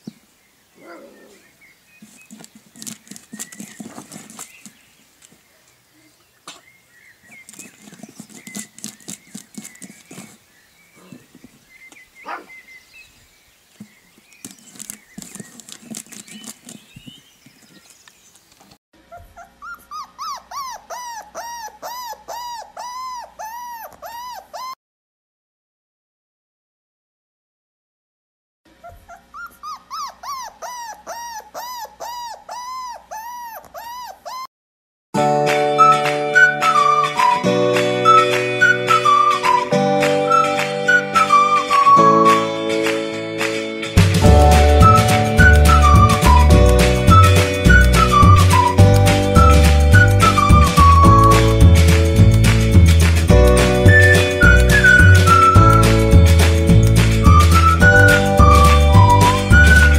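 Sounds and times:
claws scraping on board: 2.0 - 4.9, 7.3 - 10.4, 13.8 - 18.0
puppy squeaky call: 12.3 - 12.5, 19.1 - 24.8, 28.8 - 34.5, 36.4 - 42.4, 44.8 - 51.6, 57.3 - 59.9
music: 35.2 - 59.9.

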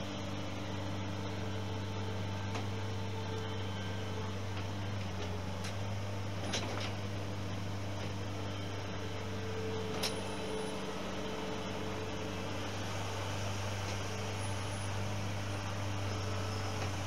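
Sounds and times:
engine humming: 0.0 - 17.0.

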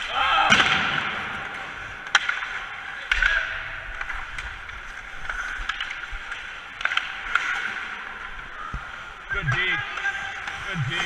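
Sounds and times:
hockey sticks and puck clacking: 0.0 - 11.0
skates scraping on ice: 0.1 - 11.0.

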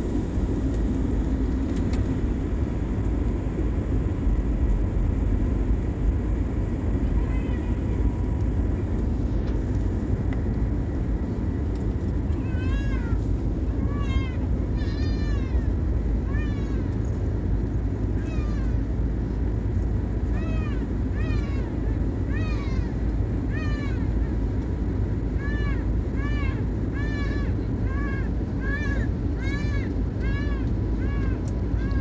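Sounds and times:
jet engine roar in cabin: 0.0 - 32.0
high meowing cries: 7.2 - 8.0, 12.3 - 17.0, 18.2 - 18.8, 20.3 - 24.4, 25.4 - 32.0.

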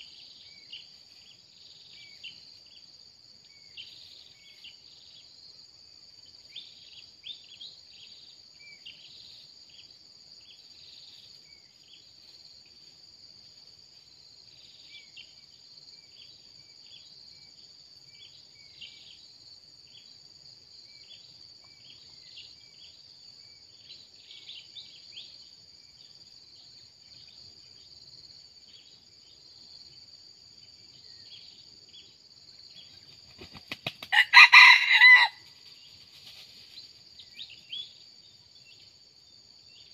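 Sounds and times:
rooster crowing: 34.1 - 35.5.

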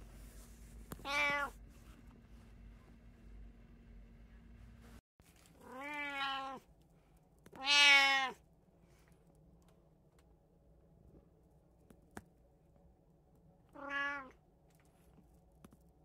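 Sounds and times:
cat meowing: 1.0 - 1.6, 5.6 - 6.6, 7.6 - 8.4, 13.7 - 14.4.

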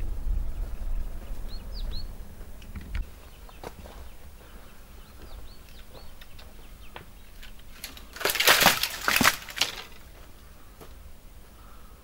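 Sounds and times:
small birds chirping: 0.0 - 12.0
close rustling and crunching: 2.6 - 11.1.

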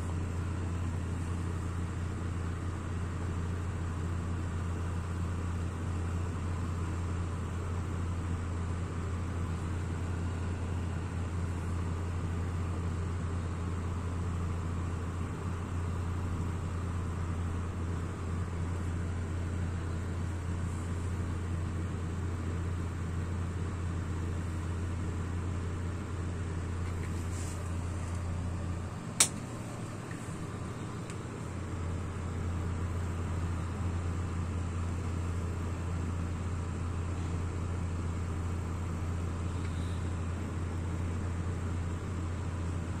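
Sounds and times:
kerosene stove burning: 0.0 - 43.0
sharp click: 29.2 - 29.5.

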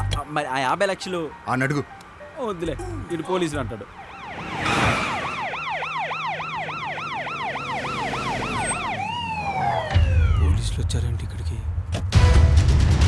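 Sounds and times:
police siren yelping: 3.9 - 10.6.

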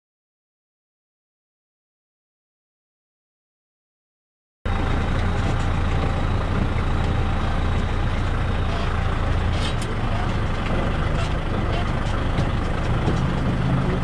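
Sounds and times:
diesel tractor hum: 4.7 - 14.0.

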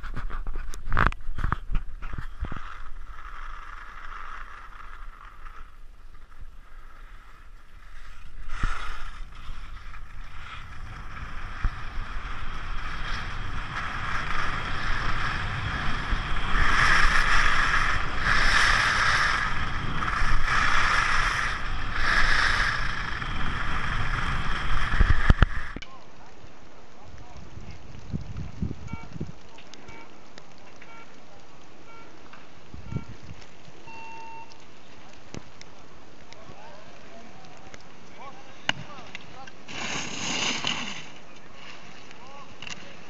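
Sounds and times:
ski edges scraping snow: 0.0 - 25.8, 38.2 - 43.0
wind on camera microphone: 7.9 - 25.8, 27.1 - 29.5, 32.6 - 33.5.

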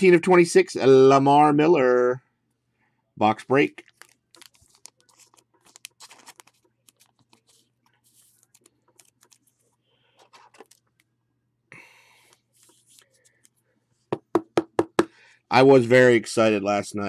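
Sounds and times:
trading cards being handled: 3.5 - 11.2, 12.2 - 13.6.

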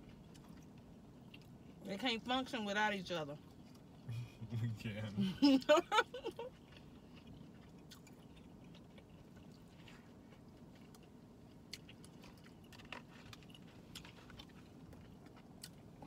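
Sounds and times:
close chewing: 0.0 - 1.8, 6.2 - 16.0
low background hum: 0.0 - 16.0.

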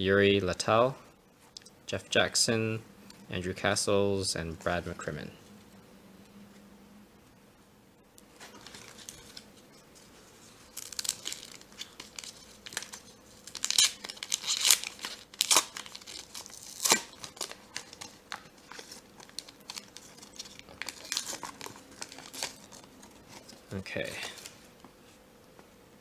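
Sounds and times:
foil wrapper crinkling: 8.4 - 24.7
foil wrapper ripping: 8.5 - 9.4, 10.4 - 24.6.

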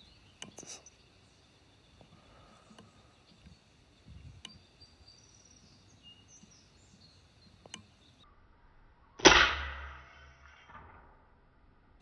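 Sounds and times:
air rifle shot: 9.2 - 10.1.

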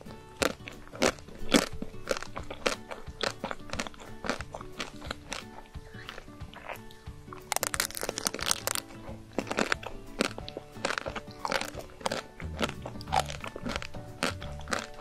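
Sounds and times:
background music: 0.0 - 15.0
chocolate shell crunching bites: 0.0 - 15.0.

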